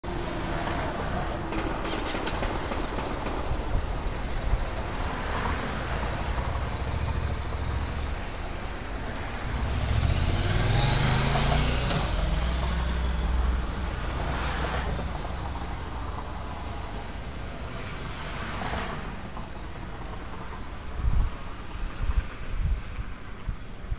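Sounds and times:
low engine rumble: 0.1s - 23.9s
car driving by: 4.4s - 17.3s.

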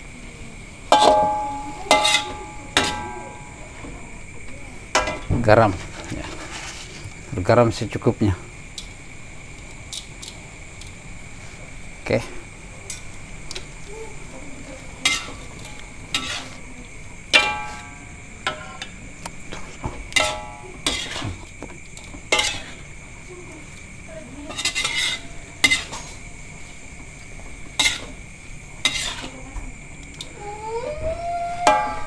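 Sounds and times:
metal spatula clanking in wok: 0.9s - 3.8s, 4.9s - 5.3s, 15.0s - 16.6s, 17.2s - 19.0s, 20.1s - 21.4s, 22.0s - 22.9s, 24.5s - 26.2s, 27.7s - 28.2s, 28.8s - 29.3s, 31.6s - 32.0s.

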